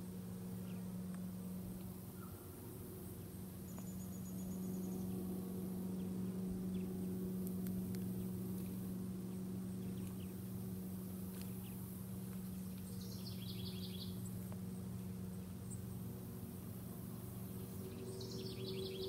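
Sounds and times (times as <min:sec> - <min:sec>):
high-pitched whine: 0:16.6 - 0:19.0.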